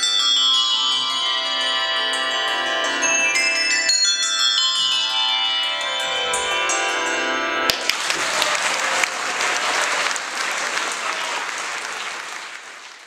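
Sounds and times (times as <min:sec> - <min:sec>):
handbells ringing: 0:00.0 - 0:08.9
audience applause: 0:07.7 - 0:13.0.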